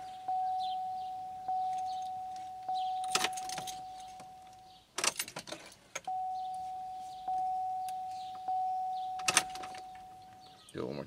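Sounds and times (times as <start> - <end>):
dashboard warning chime dinging: 0.0 - 5.2, 6.0 - 10.8
ignition clicks: 6.0 - 10.4.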